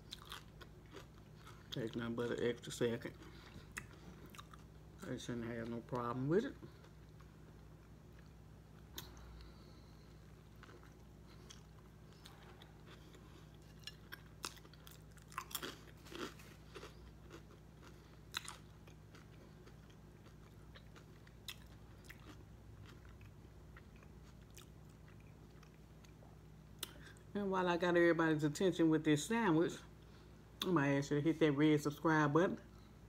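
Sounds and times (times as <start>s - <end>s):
chewing sandwich: 0.0s - 5.0s, 6.5s - 27.2s.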